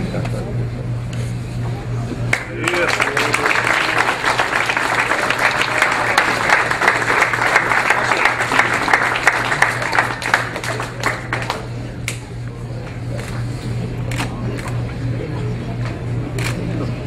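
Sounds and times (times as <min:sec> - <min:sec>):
steady low hum: 0:00.0 - 0:17.0
crowd clapping: 0:02.3 - 0:12.3.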